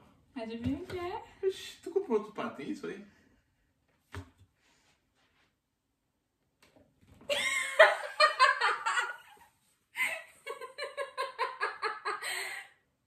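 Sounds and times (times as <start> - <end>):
excited laughter: 7.3 - 12.7.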